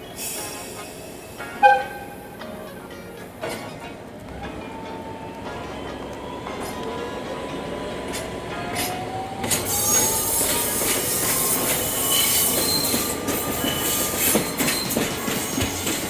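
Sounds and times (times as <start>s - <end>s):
wheels squealing on rails: 0.0s - 16.0s
sharp clicks from rails: 3.4s - 16.0s
locomotive engine rising in pitch: 4.3s - 16.0s.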